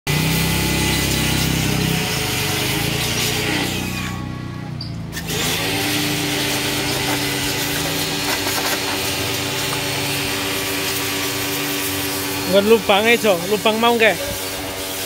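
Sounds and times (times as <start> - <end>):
pressure washer motor humming: 0.1 - 15.0
water jet hissing on metal: 5.2 - 15.0.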